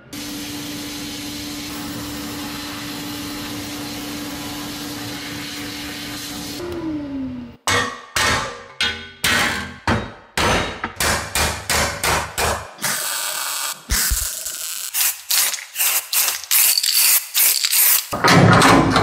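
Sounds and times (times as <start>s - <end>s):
welding crackling bursts: 12.8s - 18.2s.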